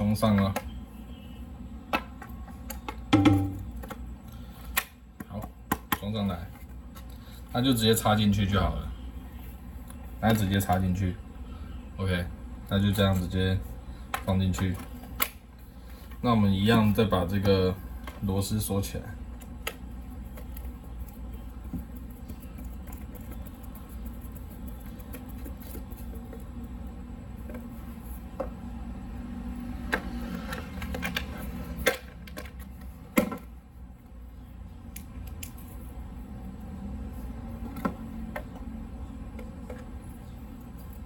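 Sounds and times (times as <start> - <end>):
steady low hum: 0.0 - 41.0
tool and panel knocks: 3.2 - 3.7.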